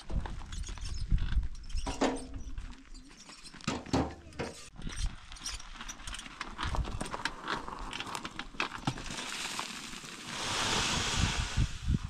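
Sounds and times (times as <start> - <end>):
wheelbarrow rattling over stony ground: 5.4 - 10.9
soil pouring onto rocks: 8.0 - 12.0.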